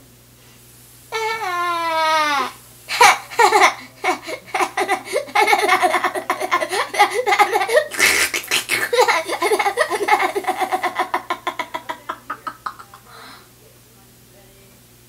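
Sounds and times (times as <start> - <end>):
person laughing: 2.9 - 13.1.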